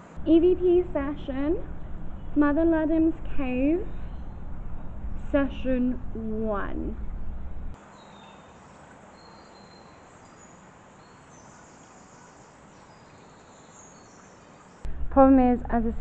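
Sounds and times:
outdoor background hiss: 0:00.0 - 0:16.0
high bird chirps: 0:03.8 - 0:05.3.

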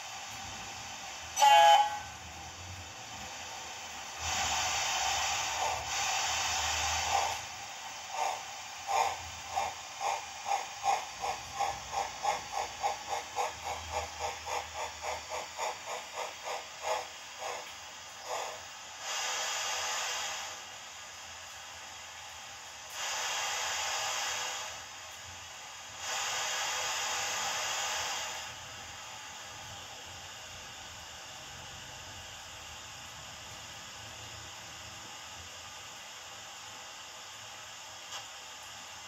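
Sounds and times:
steam locomotive chuffing: 0:00.0 - 0:21.8, 0:22.5 - 0:31.4
steam hiss: 0:00.0 - 0:29.8
air horn blast: 0:01.4 - 0:02.2.

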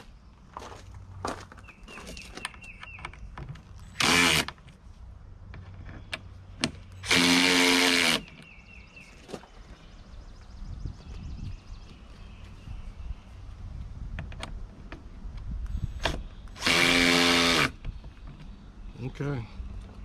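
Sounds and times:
electric screwdriver running: 0:04.0 - 0:04.5, 0:07.0 - 0:08.2, 0:16.6 - 0:17.8.

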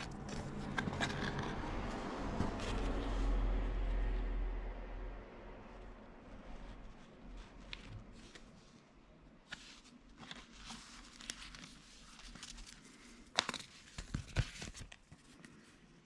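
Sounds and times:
paper leaflets rustling: 0:09.4 - 0:15.8.

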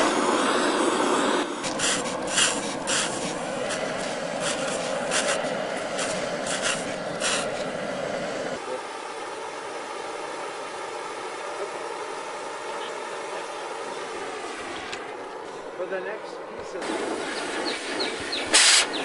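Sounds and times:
torch hissing: 0:00.0 - 0:08.6, 0:16.8 - 0:19.0
spray bottle squirting: 0:01.6 - 0:07.7, 0:18.5 - 0:19.0.

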